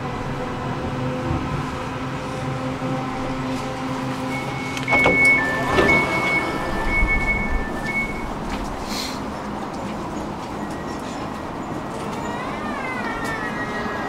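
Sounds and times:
tram electric drive humming: 0:00.0 - 0:14.0
falling whine: 0:04.2 - 0:08.7
two-pitch electronic door beeping: 0:04.3 - 0:08.4, 0:12.0 - 0:14.0.

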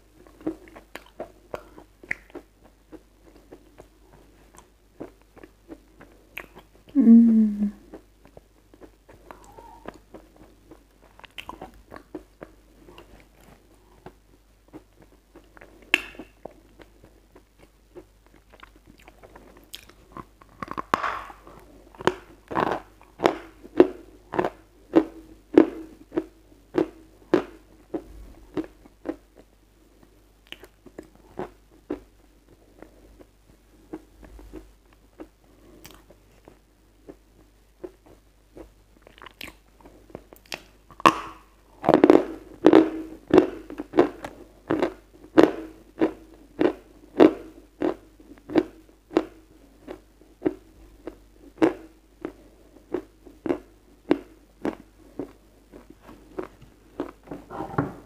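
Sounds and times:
crunchy chewing of chalk: 0:41.8 - 0:57.2.

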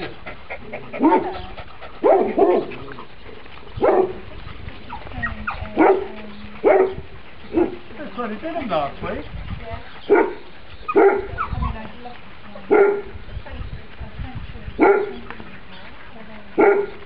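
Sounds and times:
dog barking: 0:02.0 - 0:02.7, 0:03.8 - 0:04.2, 0:05.8 - 0:07.8, 0:10.1 - 0:11.4, 0:12.7 - 0:13.1, 0:14.8 - 0:15.2, 0:16.6 - 0:17.0.

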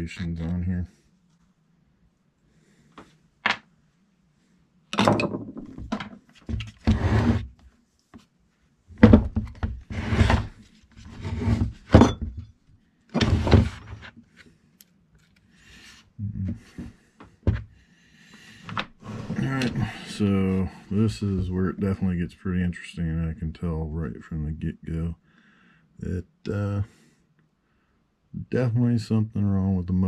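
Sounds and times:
parts knocking on wooden workbench: 0:05.0 - 0:07.0, 0:09.0 - 0:09.8, 0:17.4 - 0:17.7.

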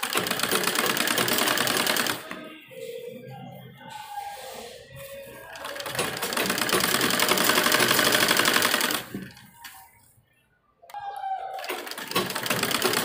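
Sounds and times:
sewing machine stitching: 0:00.0 - 0:02.4, 0:05.6 - 0:09.4, 0:11.6 - 0:13.0.

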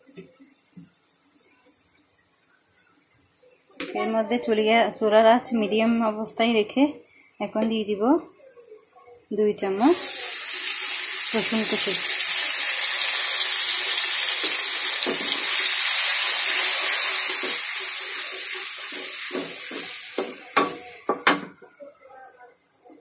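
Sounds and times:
garlic sizzling in hot oil: 0:09.7 - 0:21.8
spatula scraping a metal pan: 0:16.6 - 0:20.9.

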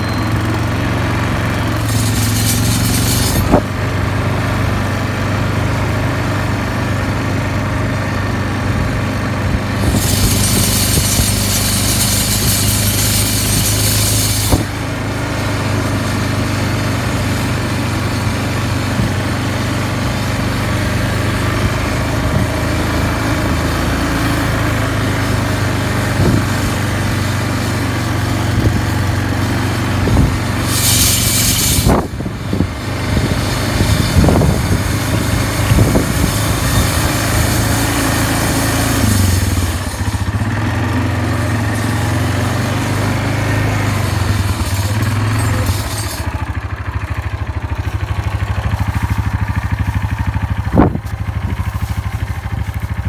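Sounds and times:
quad bike engine under load: 0:00.0 - 0:53.0
rush of hiss: 0:01.8 - 0:03.6, 0:09.8 - 0:14.8, 0:30.3 - 0:32.1.

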